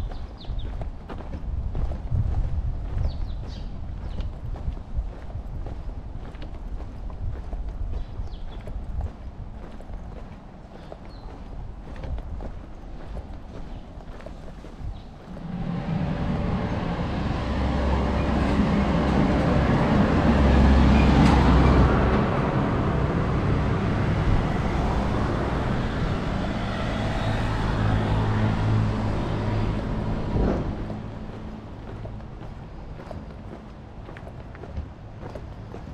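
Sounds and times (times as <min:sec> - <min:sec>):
vehicle engine running: 0:15.3 - 0:20.8, 0:22.1 - 0:34.1.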